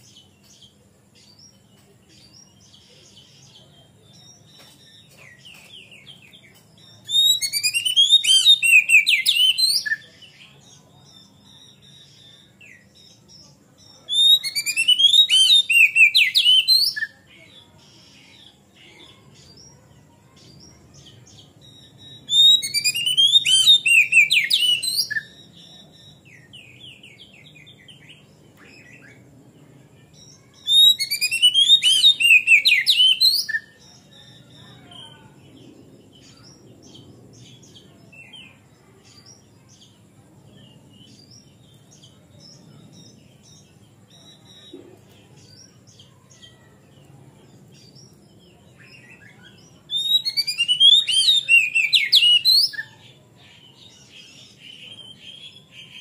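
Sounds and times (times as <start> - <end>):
faint bird chirps: 0.0 - 56.0
bird whistled song: 4.1 - 10.2, 14.0 - 17.2, 21.3 - 29.2, 30.3 - 35.1, 47.8 - 53.0.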